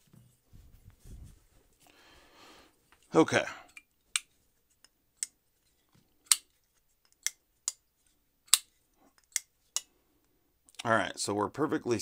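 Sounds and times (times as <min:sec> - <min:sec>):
folding knife clicking open and shut: 0:06.2 - 0:06.5, 0:08.5 - 0:09.5.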